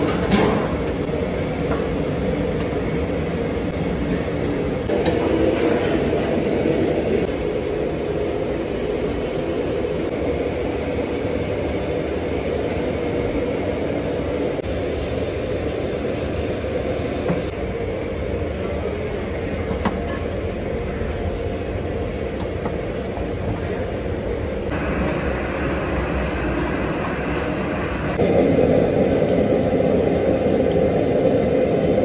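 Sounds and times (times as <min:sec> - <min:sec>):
extractor hoods and burners roaring: 0:23.1 - 0:32.0.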